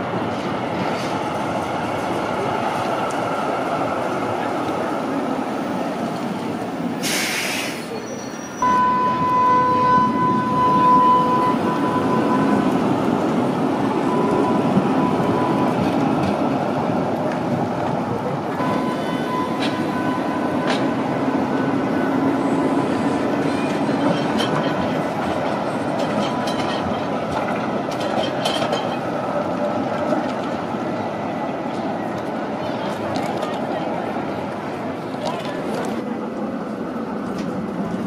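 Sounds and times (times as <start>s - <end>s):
tram wheels rumbling on rail: 0.0s - 38.0s.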